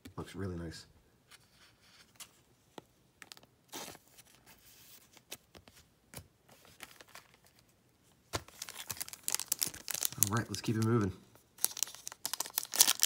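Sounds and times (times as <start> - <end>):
foil wrapper crinkling: 8.4 - 11.0, 11.6 - 13.0.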